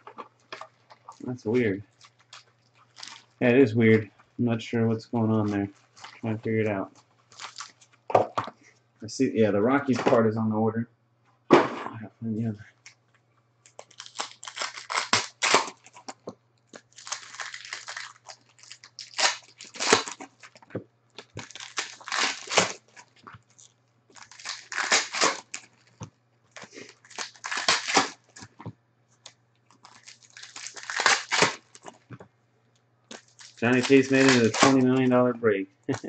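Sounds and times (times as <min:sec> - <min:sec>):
foil wrappers crinkling and tearing: 0:00.1 - 0:04.0, 0:05.5 - 0:08.1, 0:13.6 - 0:20.6, 0:21.2 - 0:28.6, 0:29.2 - 0:32.1, 0:33.1 - 0:35.1.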